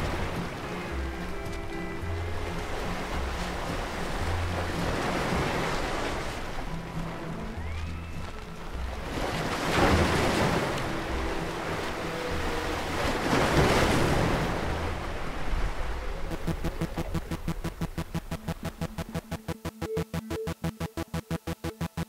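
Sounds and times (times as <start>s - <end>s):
soft sustained music notes: 0.0s - 4.8s
ocean waves washing in: 0.0s - 7.7s, 8.4s - 22.0s.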